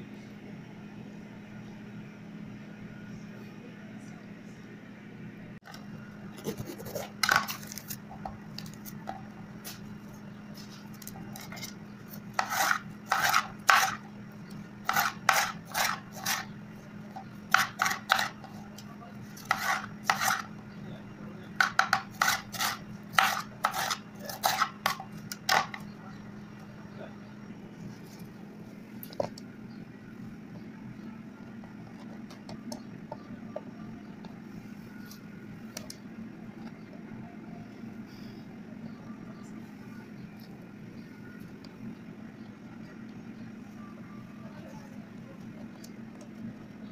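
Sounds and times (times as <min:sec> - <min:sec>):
faint steady hum: 0:00.0 - 0:46.9
knife chopping on wooden board: 0:12.4 - 0:14.0, 0:14.9 - 0:16.4, 0:17.5 - 0:18.4, 0:19.4 - 0:20.5, 0:21.6 - 0:25.8.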